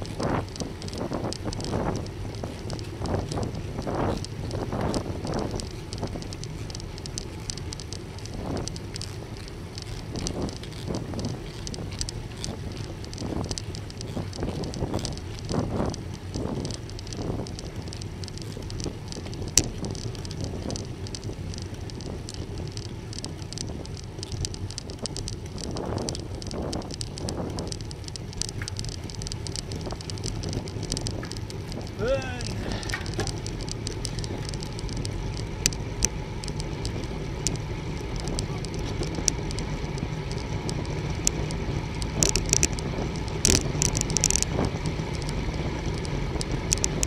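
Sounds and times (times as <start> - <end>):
bicycle tyre road rumble: 0.0 - 47.0
fine crackling ticks: 0.0 - 47.0
wind on microphone: 0.0 - 47.0.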